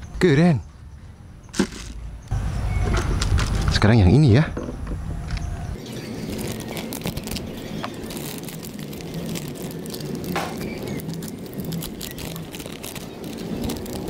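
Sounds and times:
plastic packaging crinkling: 0:05.8 - 0:14.0.

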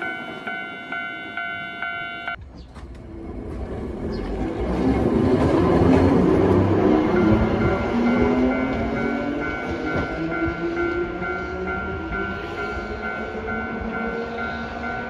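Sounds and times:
crossing alarm ringing: 0:00.0 - 0:02.4, 0:06.7 - 0:15.0
tram running noise and motor hum: 0:00.0 - 0:15.0.

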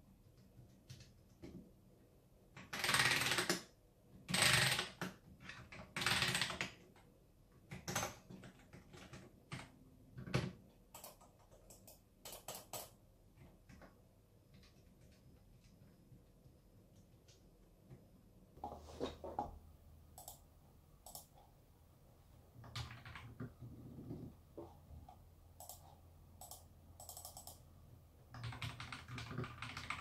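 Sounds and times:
mechanical keyboard typing: 0:02.5 - 0:03.7, 0:04.3 - 0:13.0, 0:20.1 - 0:20.4, 0:21.0 - 0:21.4, 0:22.6 - 0:24.3, 0:25.1 - 0:27.7, 0:28.3 - 0:30.0.

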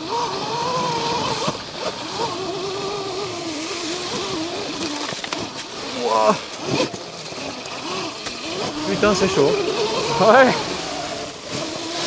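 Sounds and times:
electric motorbike motor whining: 0:00.0 - 0:12.0
tyres rumbling on leaves and dirt: 0:00.0 - 0:12.0.

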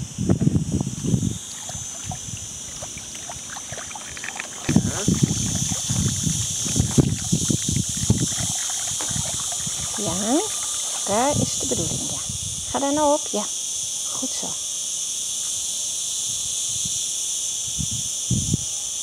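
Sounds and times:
steady high hiss: 0:00.0 - 0:19.0
water splashing in pool: 0:01.4 - 0:12.2.

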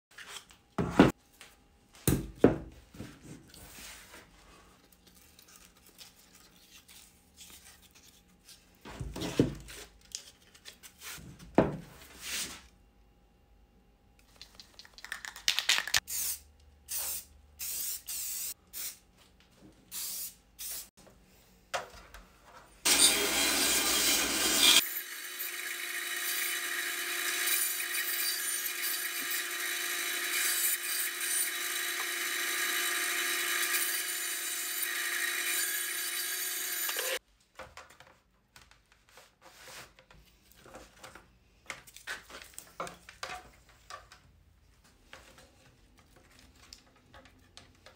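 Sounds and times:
bandsaw cutting wood: 0:22.9 - 0:37.2.

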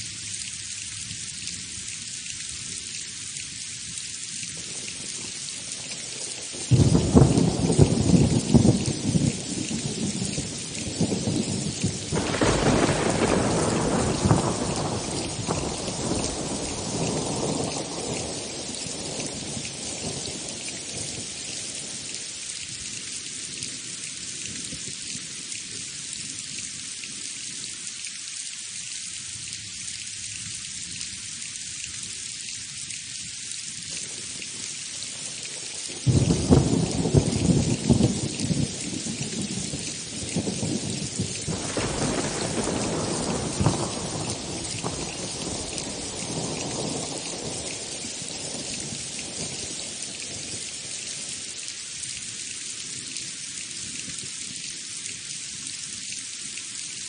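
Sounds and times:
steady rain: 0:00.0 - 0:57.0
rolling thunderclap: 0:06.7 - 0:18.4, 0:36.1 - 0:47.9.

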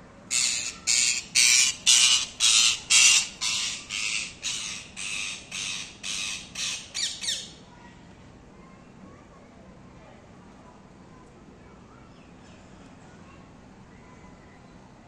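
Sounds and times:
parrot squawking: 0:00.3 - 0:07.6.

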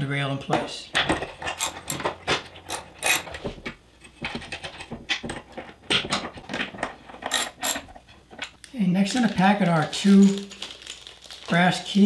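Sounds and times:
wrench tightening bolts: 0:01.4 - 0:03.3, 0:07.2 - 0:08.0.

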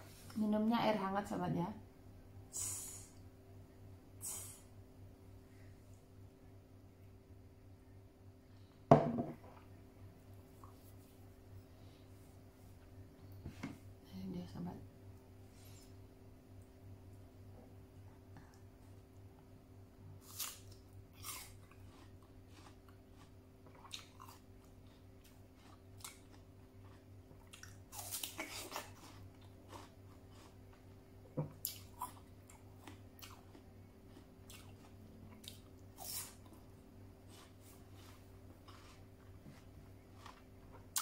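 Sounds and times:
pear being bitten and chewed: 0:20.2 - 0:31.0, 0:31.6 - 0:39.4.

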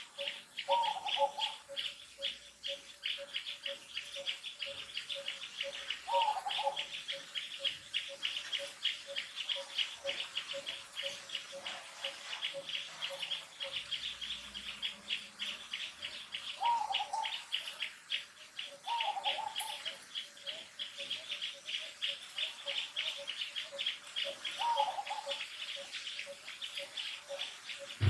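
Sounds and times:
birds chirping rapidly: 0:00.0 - 0:28.0.

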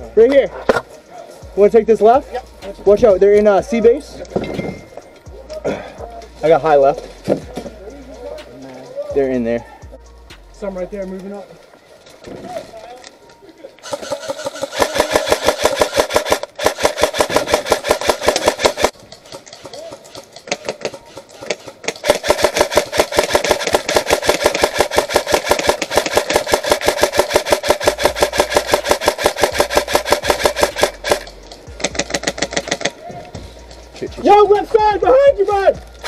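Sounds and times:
airsoft rifle firing bursts: 0:13.8 - 0:32.9.

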